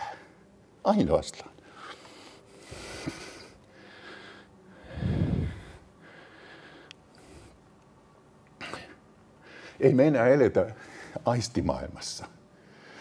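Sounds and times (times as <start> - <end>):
man breathing into microphone: 1.7 - 7.6.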